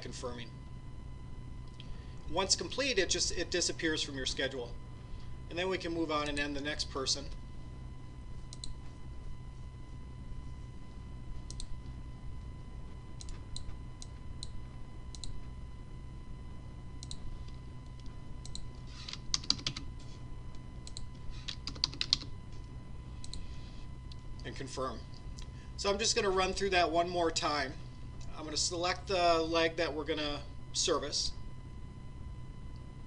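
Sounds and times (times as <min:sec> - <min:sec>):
faint steady hum: 0:00.0 - 0:33.0
computer mouse clicks: 0:08.5 - 0:08.8, 0:11.5 - 0:11.7, 0:13.2 - 0:15.4, 0:17.0 - 0:17.2, 0:17.9 - 0:19.9, 0:20.8 - 0:22.3.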